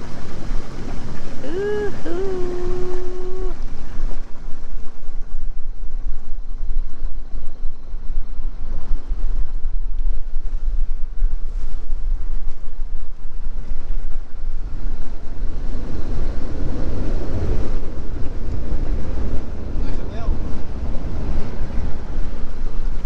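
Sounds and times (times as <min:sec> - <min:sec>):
water rushing: 0:00.0 - 0:05.1
deep rumble: 0:00.0 - 0:23.0
wind buffeting microphone: 0:00.0 - 0:23.0.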